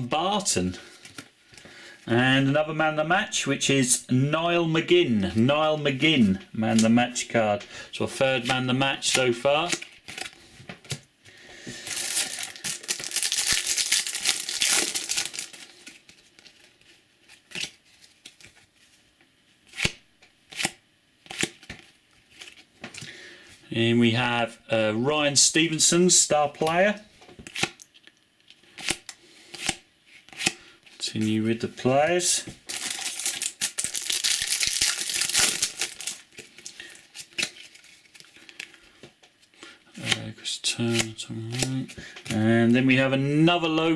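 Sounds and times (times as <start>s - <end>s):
foil pack crinkling and tearing: 11.8s - 18.6s, 32.6s - 38.8s.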